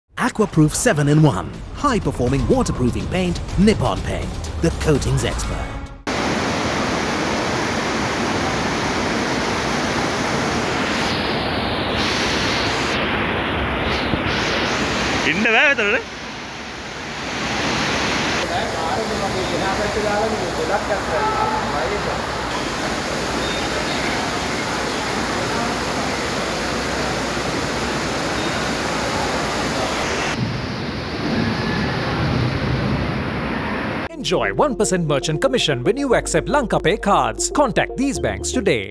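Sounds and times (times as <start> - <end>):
floodwater rushing: 6.1 - 34.1.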